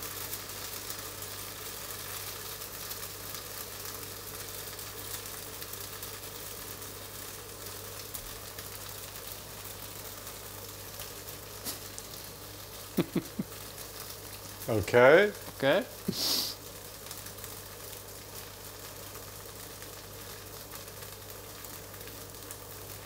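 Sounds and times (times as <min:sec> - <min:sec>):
pancake sizzling in a pan: 0:00.0 - 0:23.0
steady low hum: 0:09.6 - 0:16.8.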